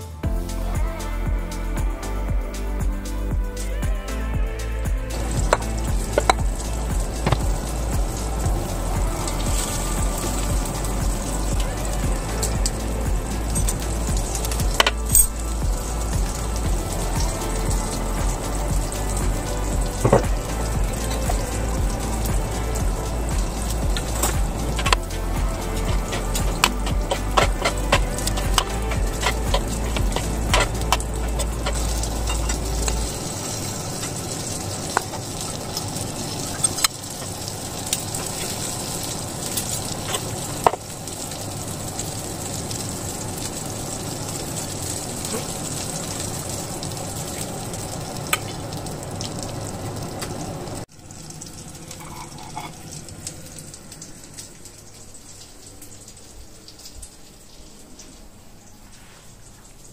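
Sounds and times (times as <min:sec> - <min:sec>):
low hum: 0:00.0 - 0:36.6
food sizzling in a pan: 0:04.1 - 0:57.6
utensil clicking against pan: 0:25.7 - 0:33.0.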